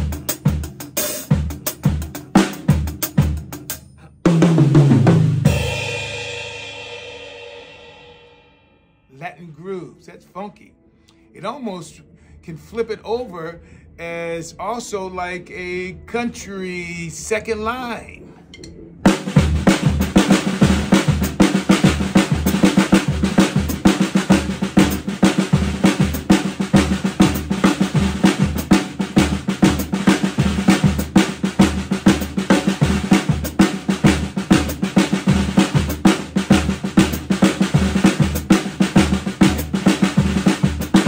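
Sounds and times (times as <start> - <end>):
bass drum beat: 0.0 - 5.9, 19.0 - 41.0
syncopated snare drum: 0.0 - 6.9, 19.1 - 41.0.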